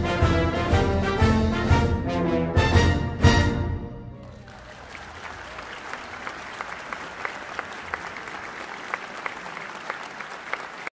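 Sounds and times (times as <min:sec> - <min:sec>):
audience applauding: 0:04.2 - 0:11.0.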